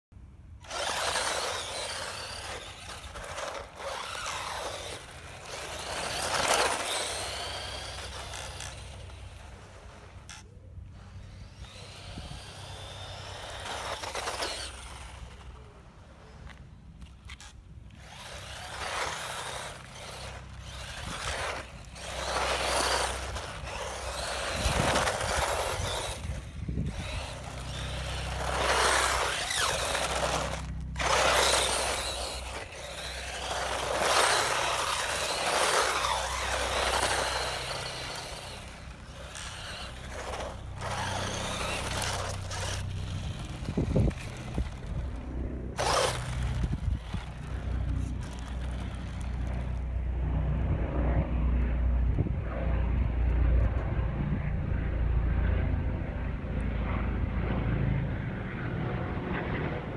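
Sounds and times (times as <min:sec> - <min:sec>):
rc car motor and gear whine: 0:00.6 - 0:49.8
tyres on concrete: 0:00.6 - 0:49.8.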